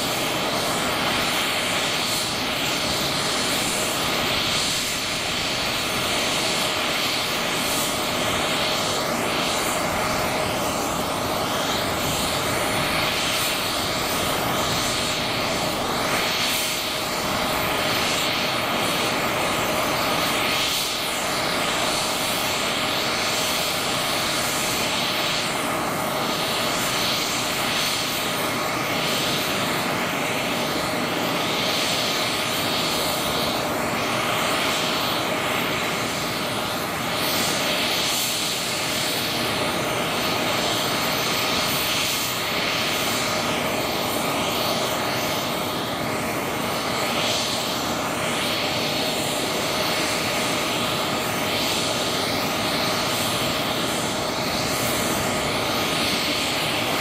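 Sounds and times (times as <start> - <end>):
helicopter turbine whine: 0.0 - 57.0.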